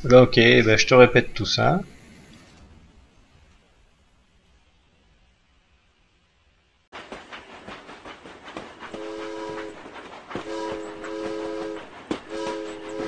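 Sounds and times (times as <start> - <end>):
train horn blasts: 8.9 - 13.0.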